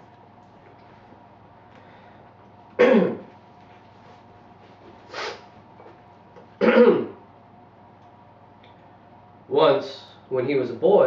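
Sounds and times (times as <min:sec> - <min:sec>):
person clearing throat and coughing: 0:02.8 - 0:03.3, 0:06.6 - 0:07.2.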